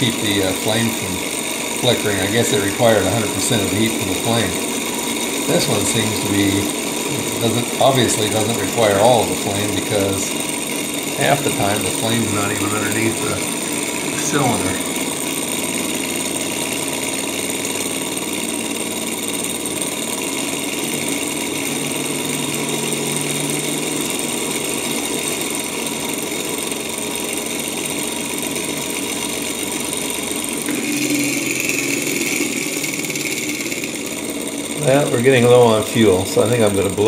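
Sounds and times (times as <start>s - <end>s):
hot-air engine mechanical chatter: 0.0s - 37.0s.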